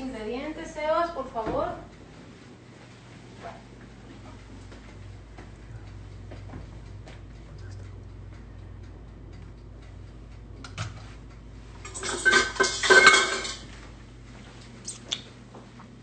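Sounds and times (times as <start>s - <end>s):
faint steady hum: 0.0s - 16.0s
metal kitchenware clattering: 11.8s - 13.7s.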